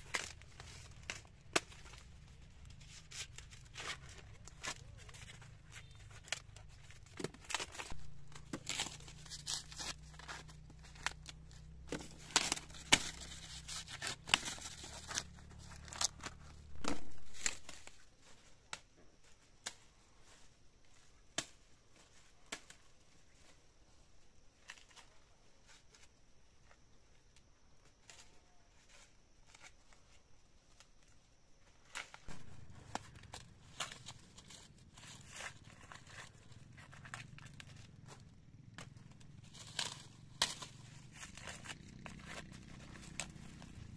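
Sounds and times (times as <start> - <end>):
corn husks tearing and snapping: 0.0 - 19.9, 31.7 - 43.9.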